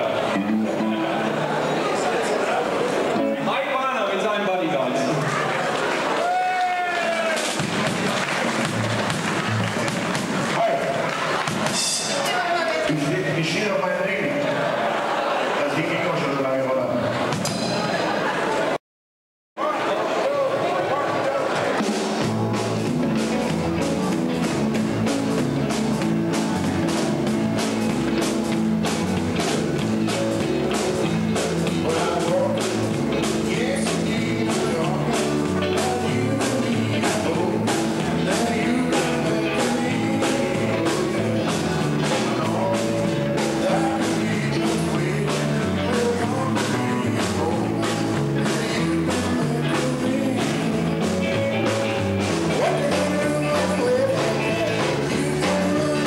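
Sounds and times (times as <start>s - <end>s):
rock band playing: 0.0s - 18.8s, 20.0s - 56.0s
man singing: 31.6s - 56.0s.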